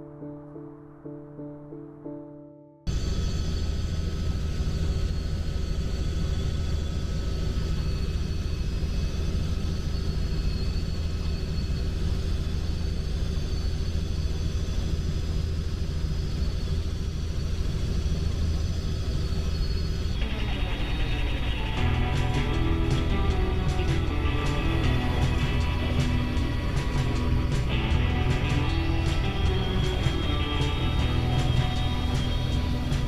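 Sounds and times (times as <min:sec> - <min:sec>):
music: 0:00.0 - 0:02.9, 0:20.2 - 0:33.0
helicopter engine and rotor drone: 0:02.9 - 0:33.0
high whine: 0:02.9 - 0:33.0.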